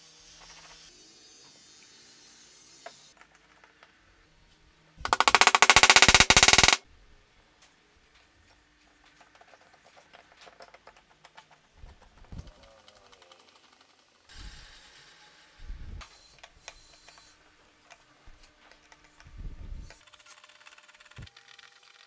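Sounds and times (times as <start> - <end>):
rapid clicking rattle: 5.1 - 6.8.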